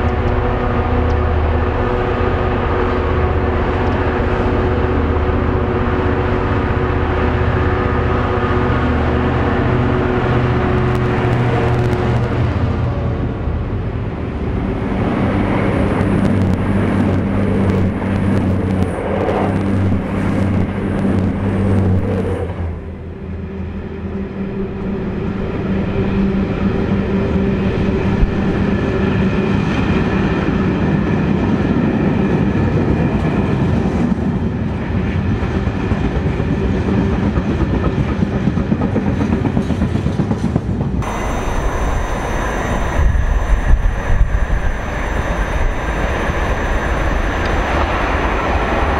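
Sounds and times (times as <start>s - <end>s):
train wheels clattering on rails: 15.0s - 22.6s, 28.1s - 42.0s, 43.0s - 48.9s.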